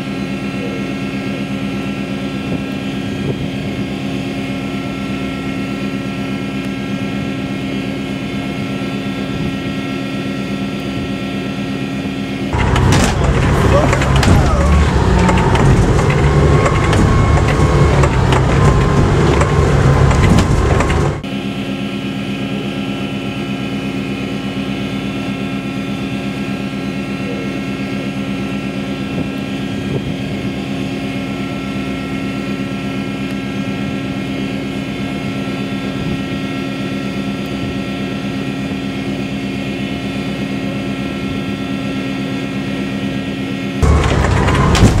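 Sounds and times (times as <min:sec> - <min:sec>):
steady machinery drone: 0:00.0 - 0:45.0
wind and water: 0:01.6 - 0:06.0
boat engine rushing: 0:11.2 - 0:21.4, 0:43.8 - 0:45.0.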